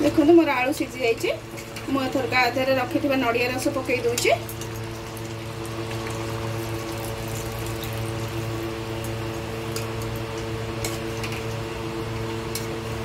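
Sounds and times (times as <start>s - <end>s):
steady hum with held tones: 0.0s - 13.0s.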